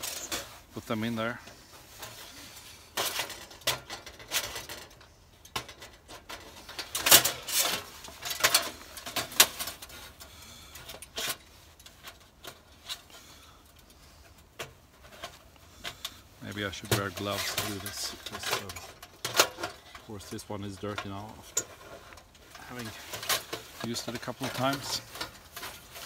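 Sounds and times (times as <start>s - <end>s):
metal panels and latches clacking: 3.0s - 10.2s, 14.5s - 26.0s.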